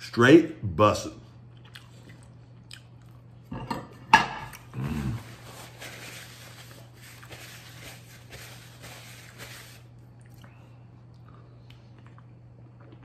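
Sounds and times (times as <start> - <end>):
voiced grunt: 4.7 - 5.3
paper towel rustling: 4.9 - 9.9.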